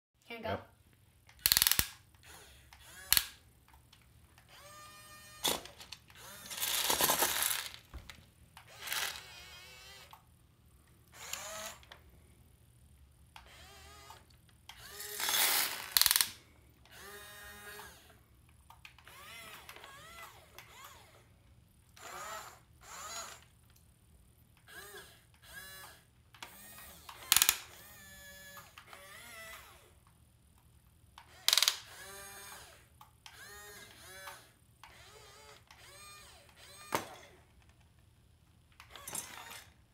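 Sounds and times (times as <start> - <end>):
sharp clicks: 1.3 - 2.0
toy excavator motors whining: 1.3 - 3.8, 4.4 - 10.3, 11.1 - 12.1, 13.4 - 23.6, 24.6 - 30.1, 31.2 - 37.8, 38.8 - 39.9
dried beans rattling: 5.4 - 8.2, 8.8 - 9.2.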